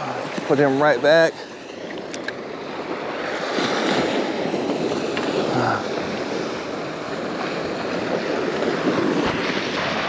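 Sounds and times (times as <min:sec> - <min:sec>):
surf breaking on beach: 0:02.5 - 0:10.0.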